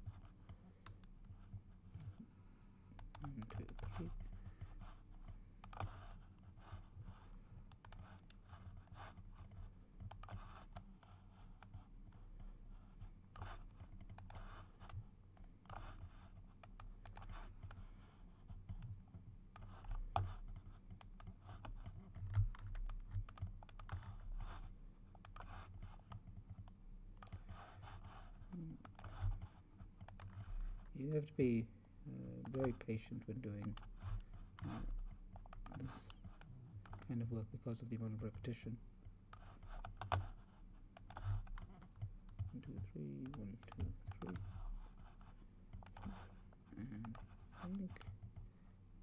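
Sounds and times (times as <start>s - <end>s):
low steady hum: 0.0s - 49.0s
keyboard and mouse clicks: 3.0s - 6.1s, 7.7s - 8.4s, 9.4s - 11.8s, 13.3s - 17.8s, 18.6s - 28.2s, 28.8s - 30.8s, 32.4s - 32.8s, 33.6s - 37.1s, 39.3s - 42.6s, 43.2s - 46.3s, 47.0s - 48.4s.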